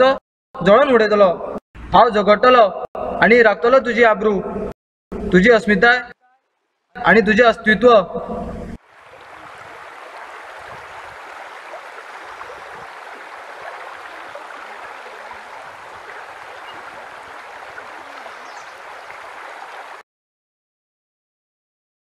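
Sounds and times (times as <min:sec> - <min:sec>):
river rushing over stones: 0:08.8 - 0:20.0.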